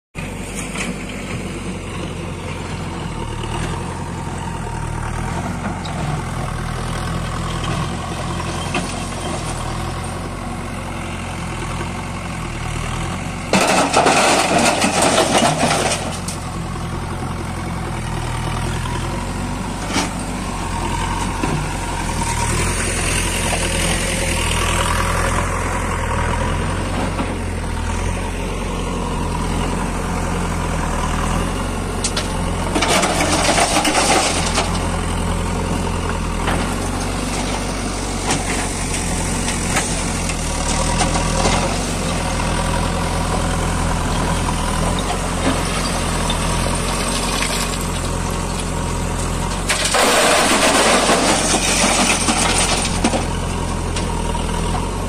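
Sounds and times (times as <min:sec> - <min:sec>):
diesel engines running: 0:00.2 - 0:55.0
rock crashing into trailer: 0:49.7 - 0:53.3.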